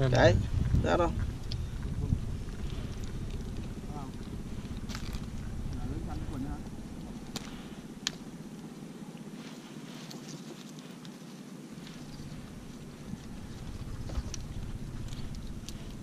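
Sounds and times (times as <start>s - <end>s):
wind on microphone: 0.0s - 7.4s
low motor hum: 0.0s - 16.0s
handling noise: 9.3s - 16.0s.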